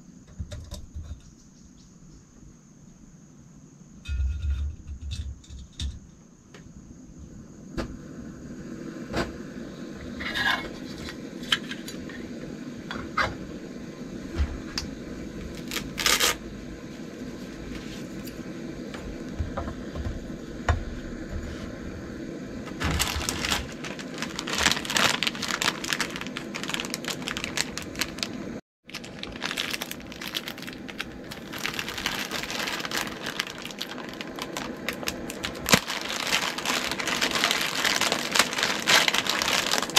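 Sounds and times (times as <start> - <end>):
gas stove burning: 4.0 - 28.6, 29.6 - 39.9
plastic packet crinkling: 15.5 - 16.4, 22.8 - 39.9.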